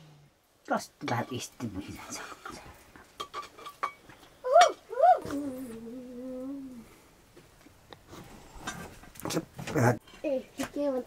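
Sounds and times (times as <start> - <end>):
person calling: 4.4 - 6.9.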